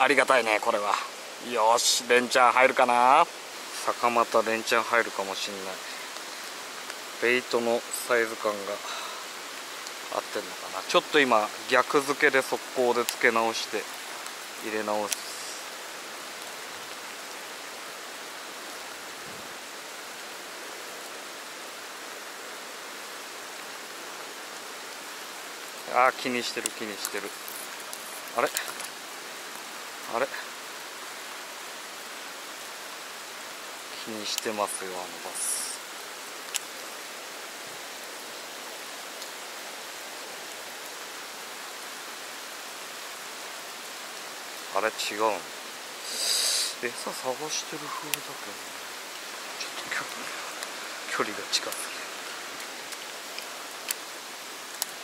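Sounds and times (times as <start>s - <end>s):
creek water running: 0.0s - 55.0s
rain: 0.0s - 55.0s
water hissing: 3.1s - 16.6s, 45.3s - 55.0s.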